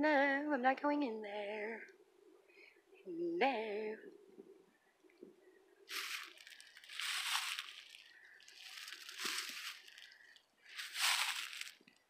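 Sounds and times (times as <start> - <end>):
footsteps crunching dry leaves: 5.9 - 11.9.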